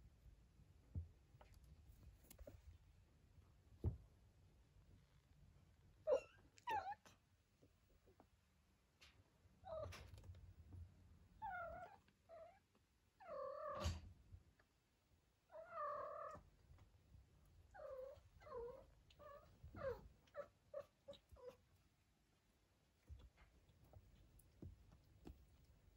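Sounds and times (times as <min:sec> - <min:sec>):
soft thumps of scrambling: 0:23.0 - 0:25.9.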